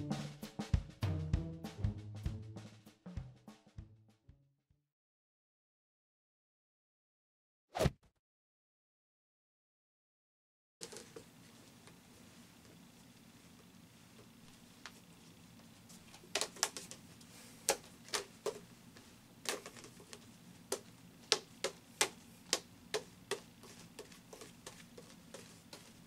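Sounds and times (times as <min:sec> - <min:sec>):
juggling clubs clacking in hands: 0:19.5 - 0:25.9.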